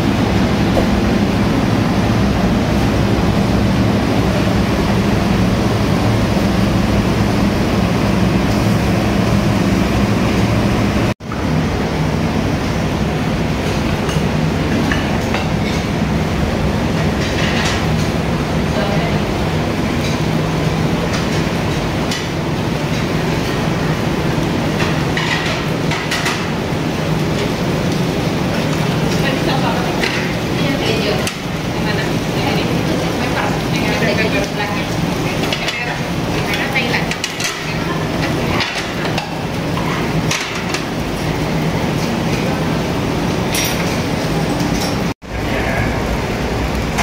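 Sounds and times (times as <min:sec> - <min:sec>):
restaurant rumbling hum: 0:00.0 - 0:47.0
utensils and dishes clinking: 0:13.7 - 0:16.0, 0:16.9 - 0:18.2, 0:24.7 - 0:26.6, 0:27.2 - 0:41.0, 0:43.3 - 0:45.1
tableware clinking: 0:43.5 - 0:45.0.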